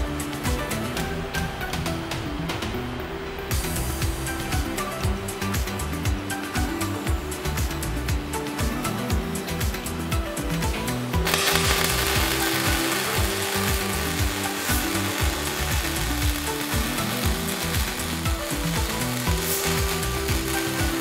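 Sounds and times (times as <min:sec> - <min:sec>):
background music with a beat: 0:00.0 - 0:21.0
welding arc crackling: 0:11.2 - 0:21.0.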